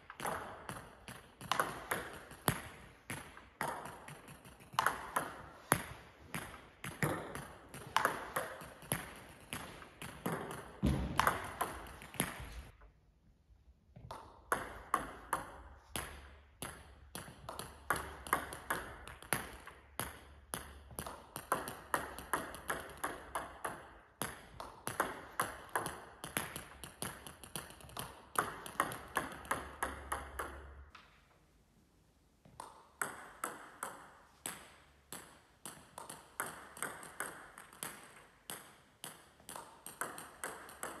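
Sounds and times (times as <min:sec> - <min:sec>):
ball bouncing on table and floor: 0:00.0 - 0:12.9, 0:13.9 - 0:31.3, 0:32.4 - 0:41.0
bat striking table tennis ball: 0:00.1 - 0:12.4.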